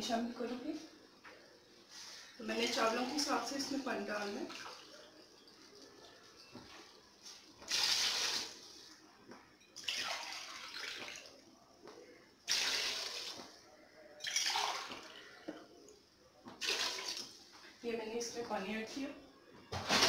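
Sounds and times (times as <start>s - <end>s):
water pouring and splashing: 3.1s - 6.2s, 7.4s - 9.0s, 9.8s - 11.4s, 12.5s - 13.6s, 14.2s - 15.1s, 16.6s - 17.4s.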